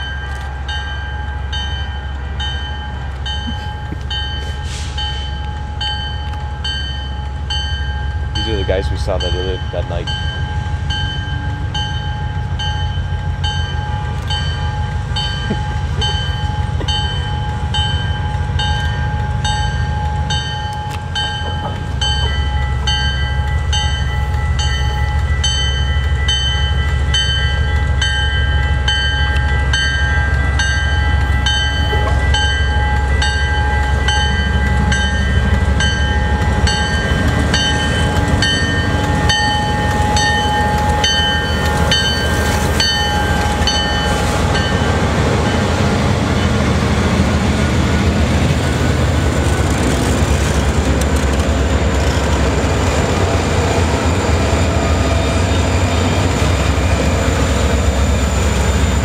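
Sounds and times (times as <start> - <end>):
locomotive engine rumble: 0.0 - 59.0.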